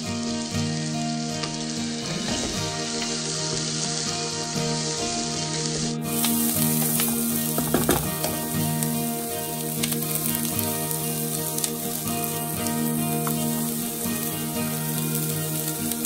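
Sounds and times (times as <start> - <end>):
soft background music: 0.0 - 16.0
vegetables sizzling in oil: 0.0 - 16.0
spatula scraping pan: 1.8 - 8.5.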